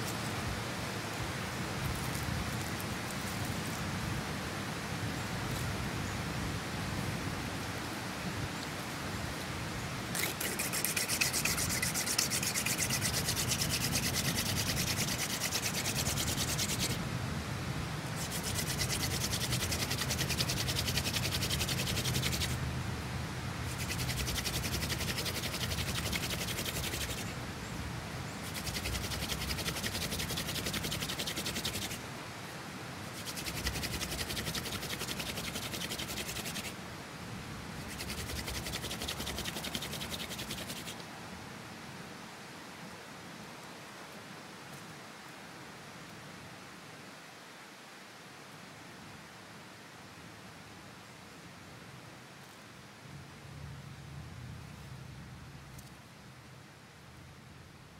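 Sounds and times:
spindle grinding into wooden board: 10.2s - 17.0s.

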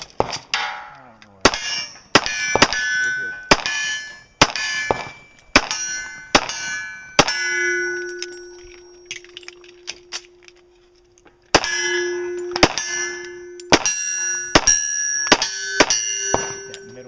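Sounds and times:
pistol shots: 0.0s - 7.5s, 11.5s - 16.8s
steel plate clanging: 0.0s - 17.0s.

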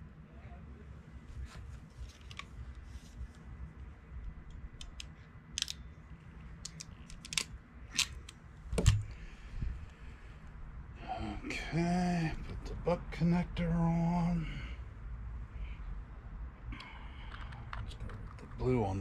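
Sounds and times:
wire crimper clicks and snaps: 4.2s - 5.8s, 6.6s - 9.1s.

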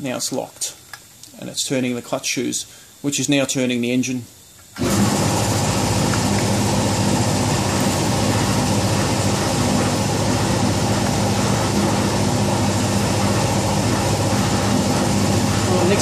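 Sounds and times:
air compressor humming: 4.8s - 16.0s.

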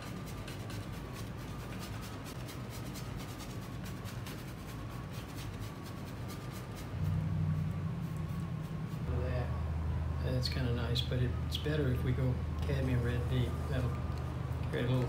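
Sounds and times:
brush scratching on canvas: 0.0s - 9.5s
low hum: 4.7s - 15.0s.

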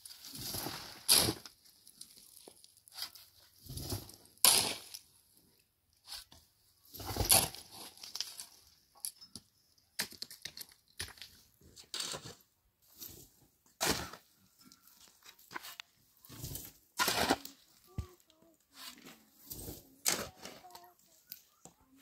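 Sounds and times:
tool scraping stony ground: 10.1s - 21.4s.

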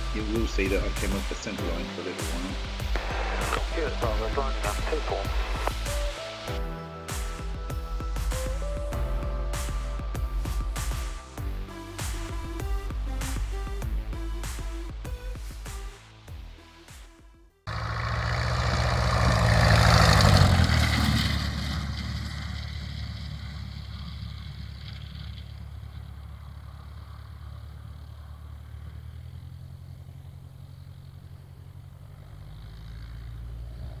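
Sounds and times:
light aircraft engine at full power: 17.7s - 34.0s.

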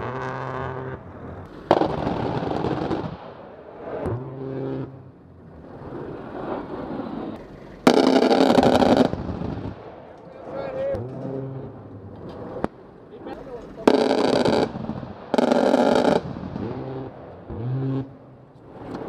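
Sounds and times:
aircraft cannon firing bursts: 1.5s - 3.6s, 7.8s - 10.0s, 13.8s - 18.2s.

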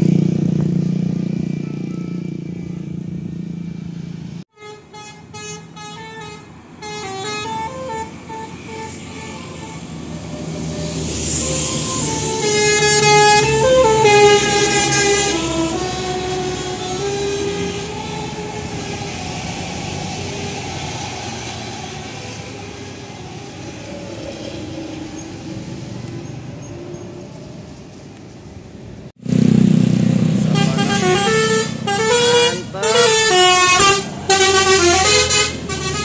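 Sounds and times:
close bus engine: 0.0s - 36.0s
engine and traffic noise: 0.0s - 36.0s
musical air horn melody: 4.5s - 19.1s, 30.4s - 36.0s.

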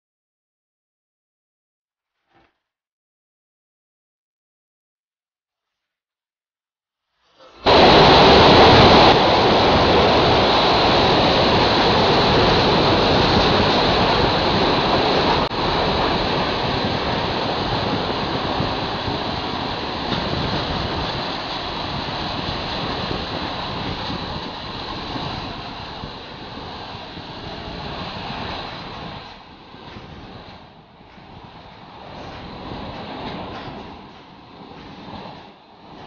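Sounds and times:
train rolling noise: 7.4s - 36.0s
wind rushing past window: 7.6s - 36.0s.

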